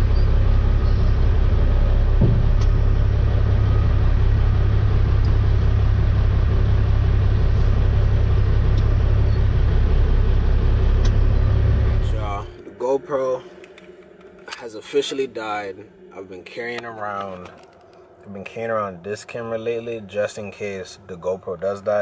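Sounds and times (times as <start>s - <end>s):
diesel truck engine rumbling: 0.0s - 12.8s.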